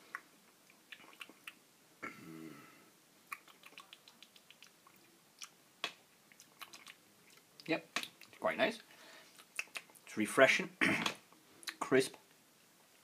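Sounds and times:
man humming mm: 0:02.0 - 0:02.9.

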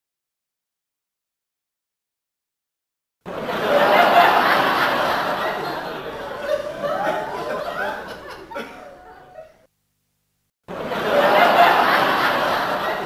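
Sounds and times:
people laughing: 0:03.3 - 0:09.7, 0:10.7 - 0:13.0.

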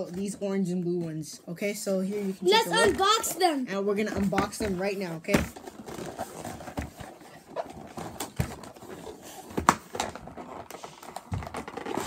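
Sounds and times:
cardboard boxes knocking and rustling: 0:04.0 - 0:12.0.

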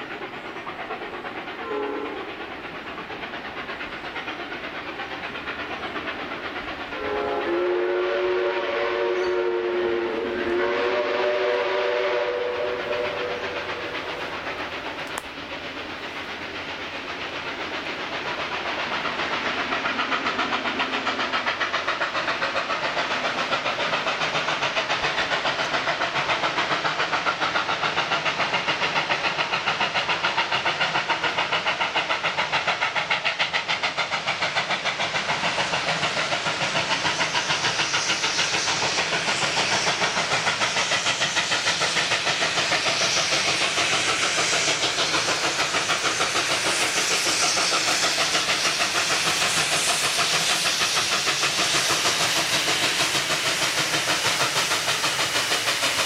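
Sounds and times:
steam locomotive exhaust beats: 0:00.0 - 0:56.0
steam locomotive whistle: 0:01.6 - 0:02.3, 0:07.0 - 0:14.1.

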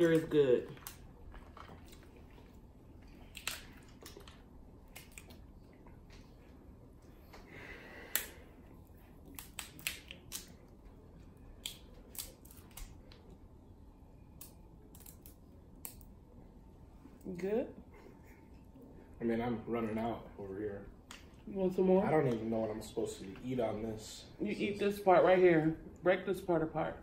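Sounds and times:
soft chewing: 0:00.1 - 0:07.5
crab shells cracking: 0:03.2 - 0:05.5, 0:09.2 - 0:10.6, 0:11.6 - 0:13.2, 0:14.4 - 0:16.1.

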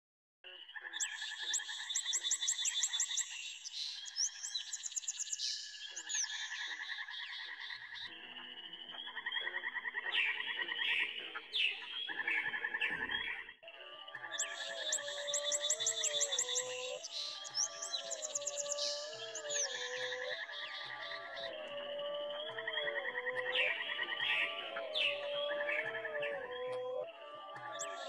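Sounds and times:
chirps and whistled calls: 0:00.5 - 0:28.0
frogs calling in pulses and trills: 0:00.7 - 0:08.1.

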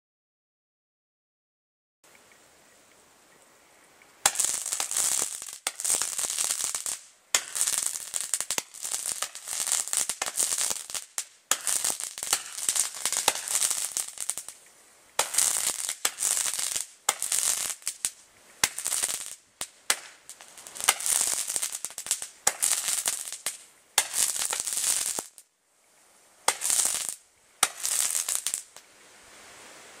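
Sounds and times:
fireworks crackling bursts: 0:04.2 - 0:25.5, 0:26.4 - 0:28.9.

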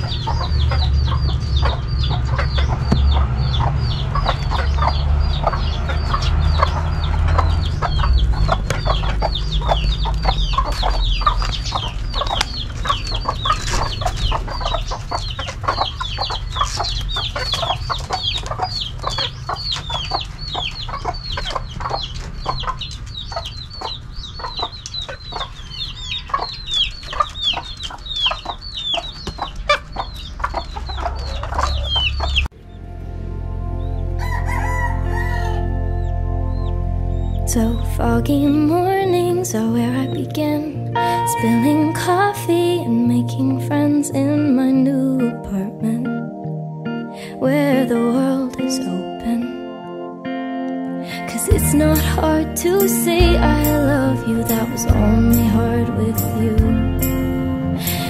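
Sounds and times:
chickens clucking: 0:00.0 - 0:32.8, 0:33.9 - 0:44.3, 0:51.0 - 0:58.0
high falling peeps: 0:00.0 - 0:58.0
low rumble: 0:31.5 - 0:39.9.

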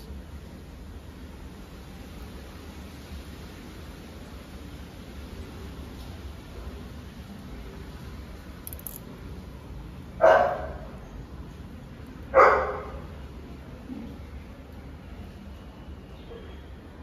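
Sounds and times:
dog barking: 0:10.2 - 0:10.9, 0:12.3 - 0:13.0.

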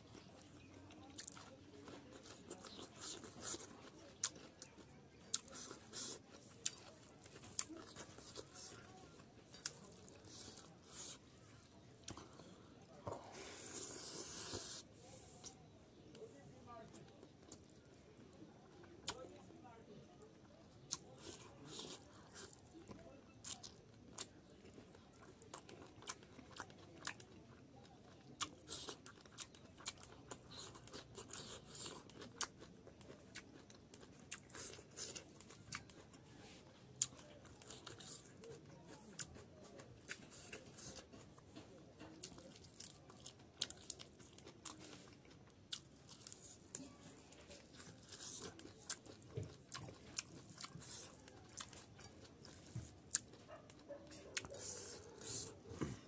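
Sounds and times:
wet mouth clicks chewing: 0:25.2 - 0:27.4, 0:28.1 - 0:46.5, 0:47.4 - 0:56.0.

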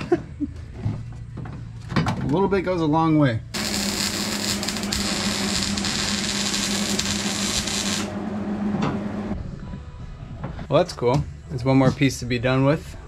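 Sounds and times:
welder arc crackling and buzzing: 0:03.6 - 0:08.5.

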